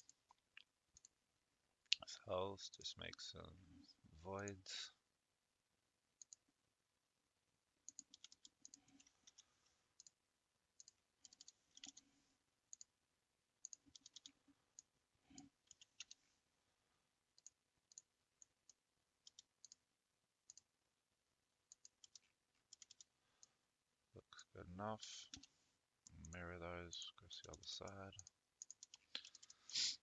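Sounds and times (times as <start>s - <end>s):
computer mouse clicks: 0.0s - 1.2s, 6.2s - 6.5s, 7.8s - 10.2s, 10.8s - 12.0s, 13.6s - 16.2s, 17.4s - 19.8s, 20.4s - 20.7s, 21.7s - 23.6s, 27.8s - 29.7s.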